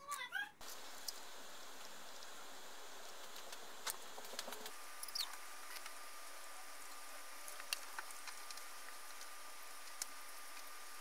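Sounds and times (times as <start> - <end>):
steady hiss: 0.6 - 11.0.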